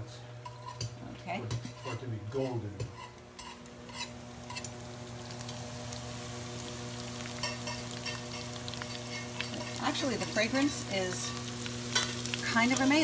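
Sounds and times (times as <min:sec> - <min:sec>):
steady low hum: 0:00.0 - 0:13.0
oil sizzling in a skillet: 0:00.4 - 0:13.0.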